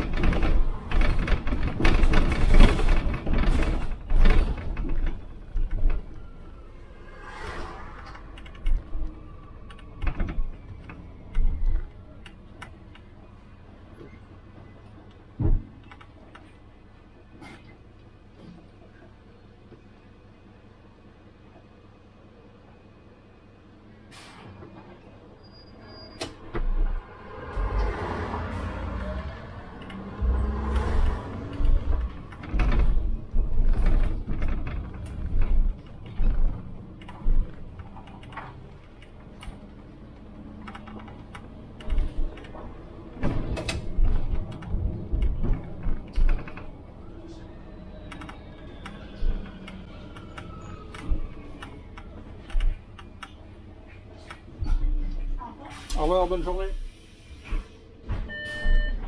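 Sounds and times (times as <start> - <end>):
bus fittings rattling and creaking: 0.0 - 6.5, 8.0 - 13.2, 24.1 - 47.4, 48.0 - 56.5.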